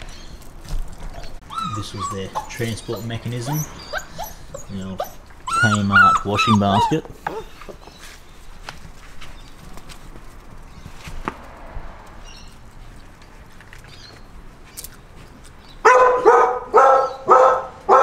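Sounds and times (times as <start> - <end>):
faint clicks and scuffs: 7.4 - 12.1
dog barking: 15.8 - 18.0.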